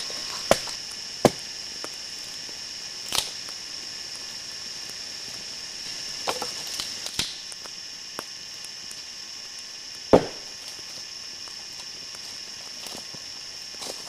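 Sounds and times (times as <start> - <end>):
blade chopping rotten log: 10.1 - 10.5.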